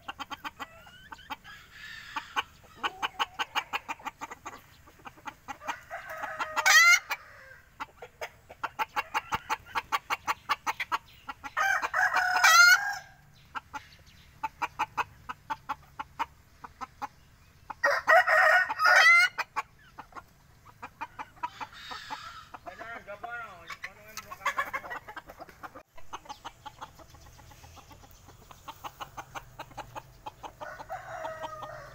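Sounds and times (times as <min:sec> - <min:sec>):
chickens clucking: 0:00.0 - 0:31.9
rooster crowing: 0:05.6 - 0:07.7, 0:11.6 - 0:13.2, 0:17.8 - 0:19.4, 0:30.6 - 0:31.9.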